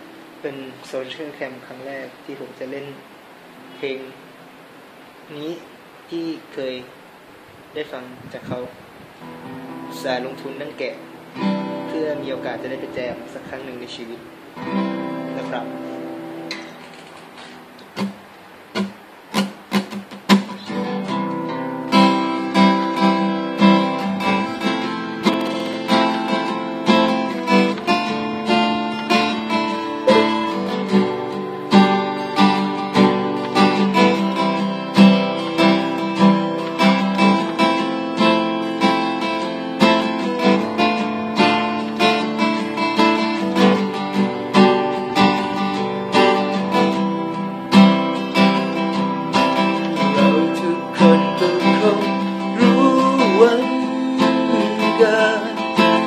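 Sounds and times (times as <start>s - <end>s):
acoustic guitar chords: 0.0s - 56.0s.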